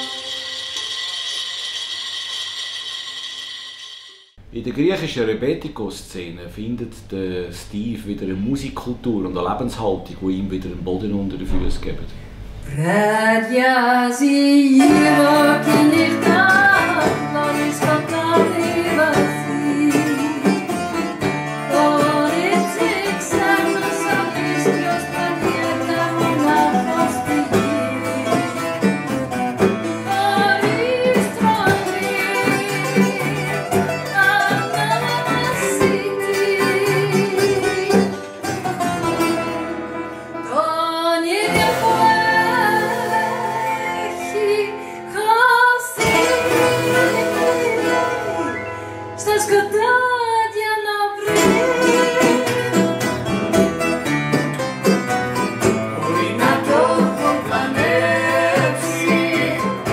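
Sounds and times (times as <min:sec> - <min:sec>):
acoustic band playing: 0:00.0 - 0:01.1, 0:14.6 - 0:59.9
woman singing: 0:12.7 - 0:29.0, 0:29.8 - 0:38.2, 0:40.4 - 0:53.3, 0:55.9 - 0:59.9.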